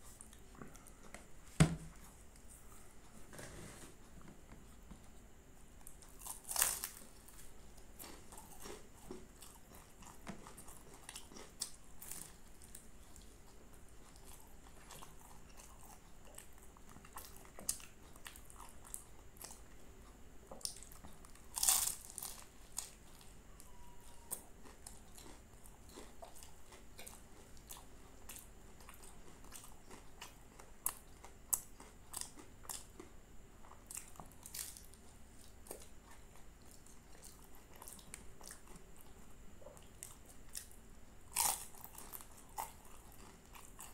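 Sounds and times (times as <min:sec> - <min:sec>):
crunching bites: 0:06.0 - 0:07.1, 0:21.5 - 0:22.9, 0:41.3 - 0:43.9.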